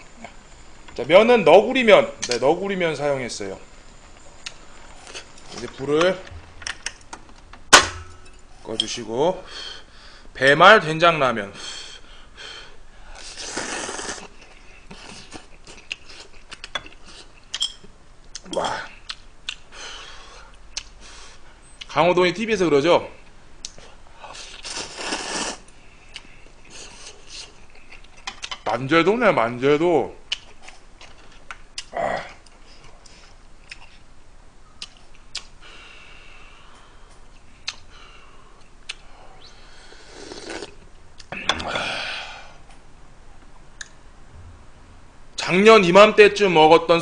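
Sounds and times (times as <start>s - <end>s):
noodles slurped: 13.2s - 16.4s, 24.4s - 25.7s, 40.0s - 40.8s
breathy vocal sound: 41.4s - 42.7s.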